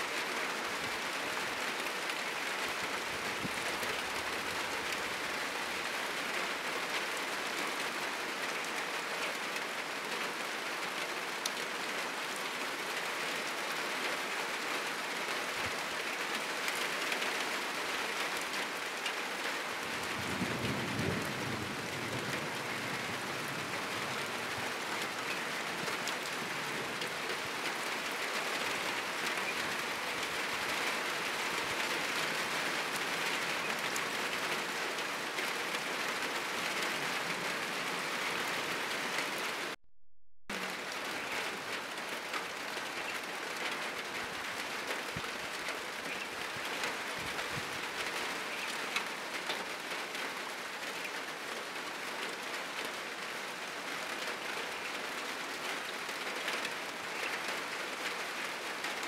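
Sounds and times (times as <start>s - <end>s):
heavy rain on a roof: 0.0s - 39.8s, 40.5s - 59.0s
distant thunder rumble: 20.1s - 24.3s.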